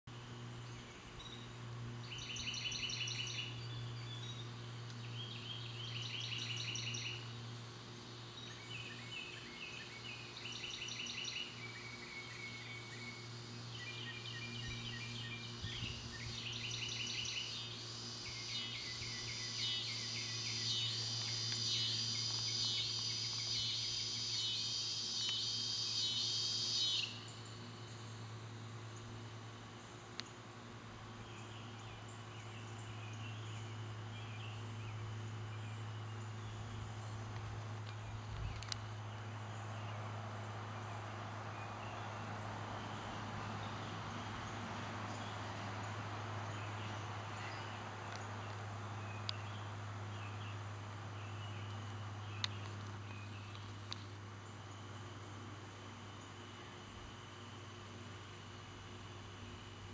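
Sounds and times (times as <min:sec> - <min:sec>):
steady low hum: 0:00.0 - 0:59.9
animals calling in pulsed trills: 0:08.9 - 0:27.8.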